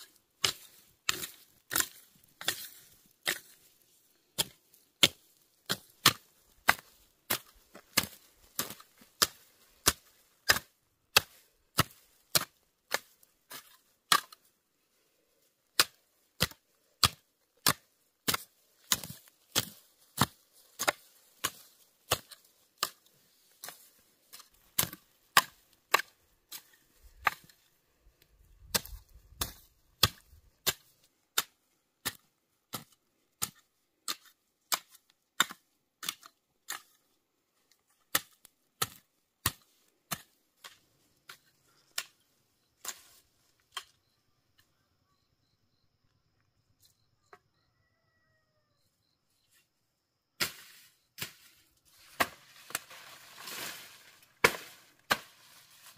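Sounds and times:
hoe chopping into hard soil: 0:50.4 - 0:51.5, 0:52.1 - 0:55.9.

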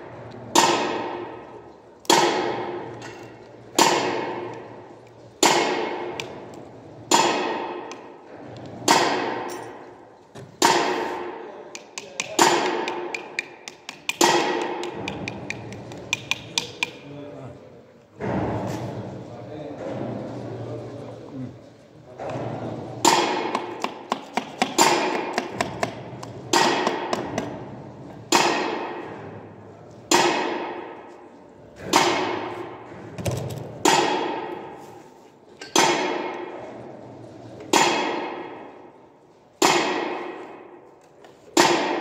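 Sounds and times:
hammer blows ringing on metal: 0:00.5 - 0:04.6, 0:05.4 - 0:06.4, 0:07.1 - 0:08.2, 0:08.8 - 0:10.0, 0:10.6 - 0:17.0, 0:23.0 - 0:27.6, 0:28.2 - 0:29.4, 0:30.1 - 0:32.9, 0:33.8 - 0:34.8, 0:35.6 - 0:36.5, 0:37.7 - 0:38.8, 0:39.6 - 0:40.8, 0:41.6 - 0:42.0.

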